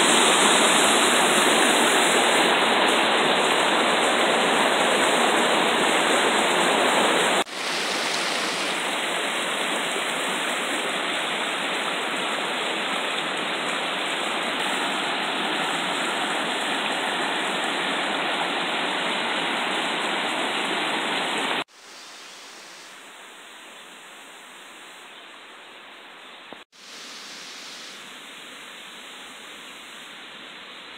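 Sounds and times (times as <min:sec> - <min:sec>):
river rushing over rocks: 0:00.0 - 0:21.6.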